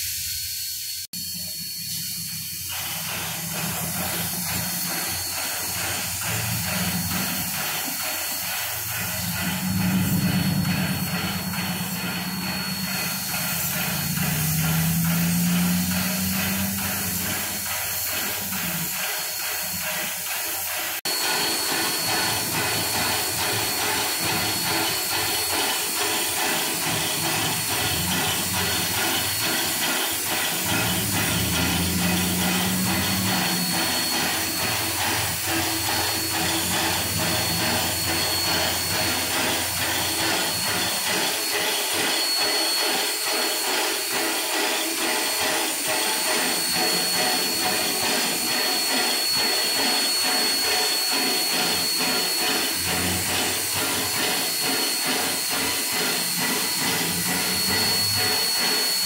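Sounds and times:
steam locomotive venting steam: 0.0s - 59.0s
low drone: 2.7s - 20.2s, 21.1s - 44.4s.

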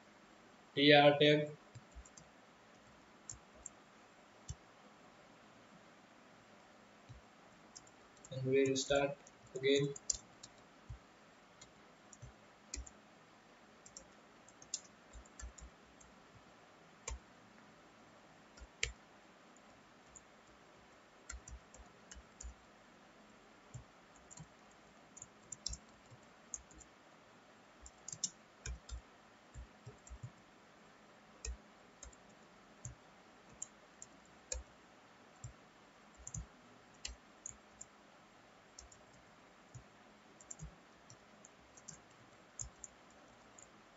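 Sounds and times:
faint steady hiss: 0.0s - 43.9s
keyboard keystrokes: 7.8s - 11.0s, 11.6s - 13.0s, 13.8s - 15.7s, 21.3s - 22.6s, 25.2s - 26.9s, 27.8s - 29.0s, 36.2s - 37.6s, 40.4s - 41.2s.

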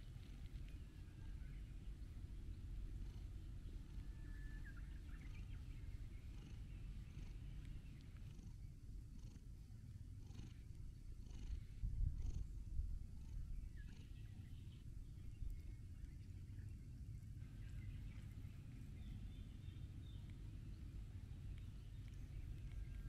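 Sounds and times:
cat purring: 2.0s - 16.0s.

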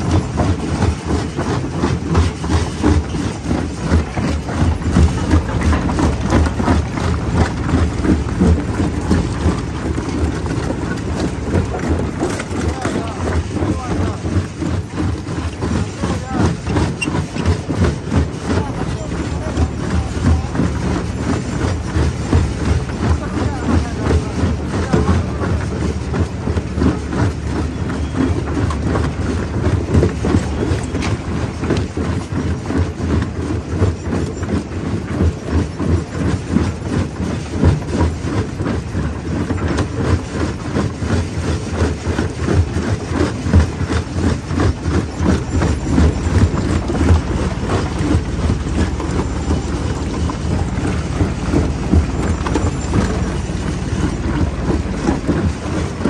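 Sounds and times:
jaw crusher crushing rock: 0.0s - 34.4s, 36.2s - 56.0s
low rumble: 45.0s - 56.0s.

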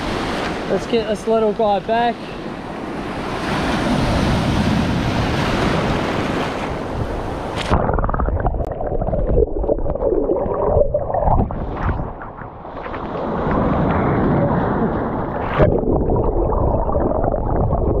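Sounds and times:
waves washing in shallows: 0.0s - 8.1s, 10.1s - 18.0s
underwater gurgling and bubbling: 7.0s - 18.0s.

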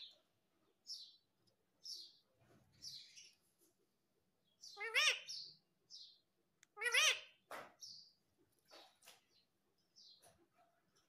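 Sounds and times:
parrot chirping: 4.6s - 7.4s
parrot squawking: 4.7s - 5.4s, 6.7s - 7.4s.

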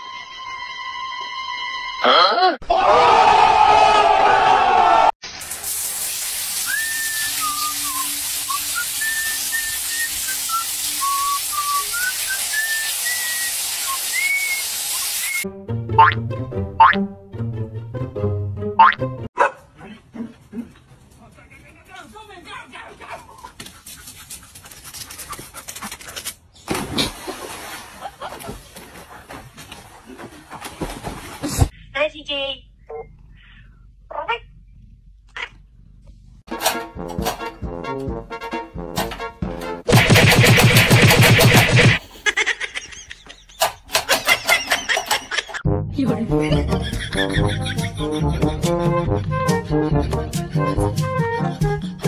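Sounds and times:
shower water spraying on tiles: 5.2s - 15.4s
sliding whistled notes: 6.6s - 15.5s
dog panting: 23.2s - 26.4s
dog splashing into pool: 26.7s - 31.7s.

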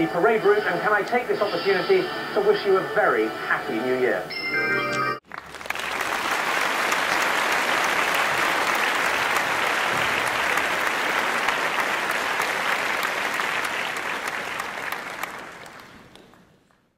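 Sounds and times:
crowd applauding: 5.2s - 16.9s.

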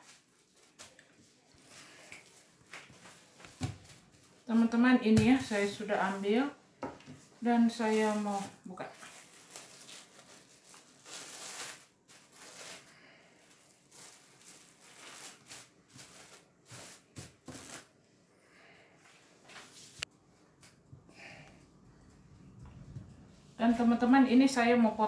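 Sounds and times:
cling film crinkling: 7.8s - 17.9s.

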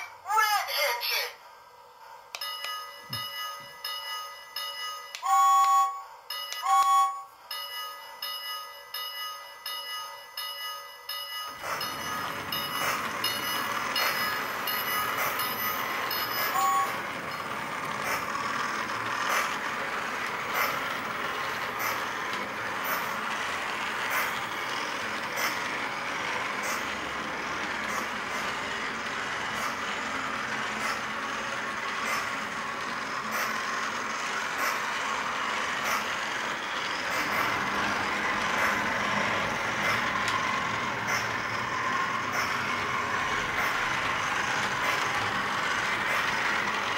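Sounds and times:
toy train motor hum: 2.3s - 46.9s
repeating bell tone: 2.4s - 17.5s
wheels clicking over rail joints: 7.7s - 46.9s.

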